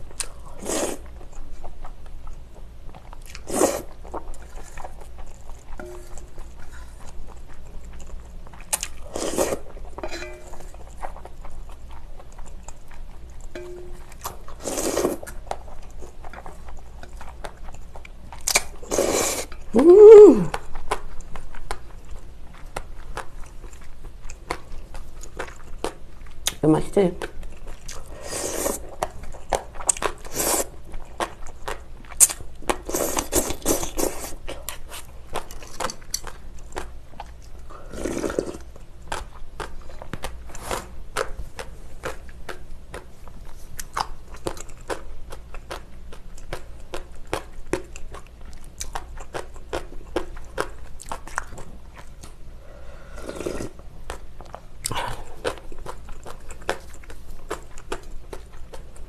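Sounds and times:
chewing with wet mouth clicks: 0.0 - 19.8, 20.5 - 37.7, 38.3 - 52.4, 53.4 - 59.0
noodle slurps: 37.8 - 38.6, 53.1 - 53.8.

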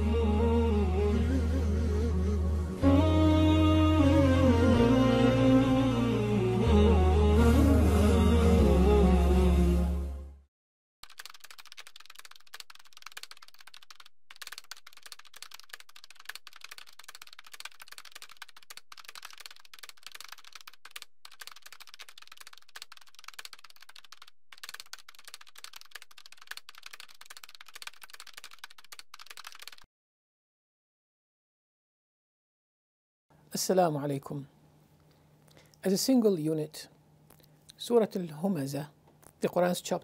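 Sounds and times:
keyboard typing clicks: 11.0 - 29.8.

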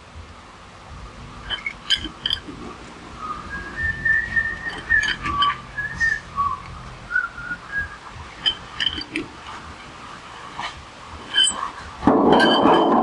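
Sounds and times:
metallic clinks of tools: 1.5 - 2.4, 4.6 - 5.6, 8.4 - 9.3, 11.2 - 13.0
person whistling: 3.2 - 8.1.

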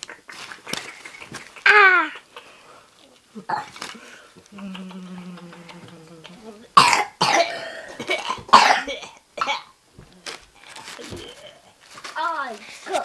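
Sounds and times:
paper wrapping crackling: 3.0 - 6.6, 10.0 - 13.0
person humming low: 4.4 - 6.7
person coughing: 6.8 - 9.7.

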